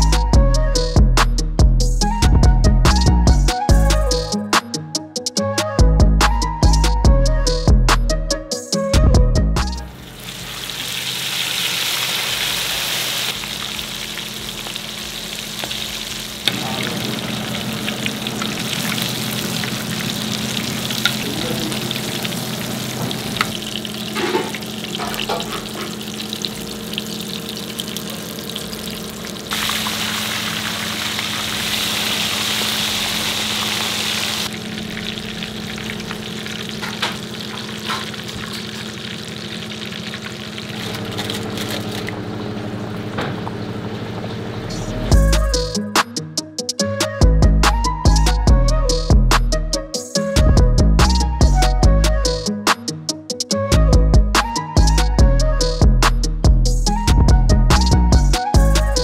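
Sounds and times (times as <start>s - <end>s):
oil sizzling in a pan: 9.9s - 42.0s.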